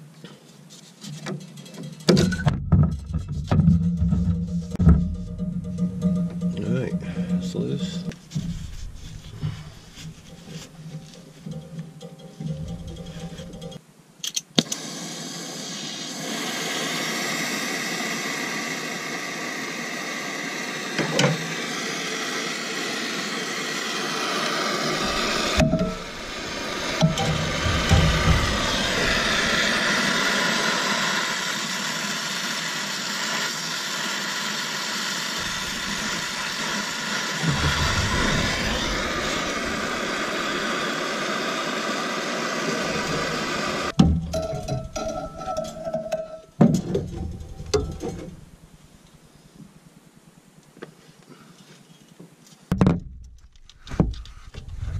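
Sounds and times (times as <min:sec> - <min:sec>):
metal tools knocking on tubing: 0:01.2 - 0:13.8, 0:44.0 - 0:48.4
torch flame hissing: 0:14.6 - 0:44.0.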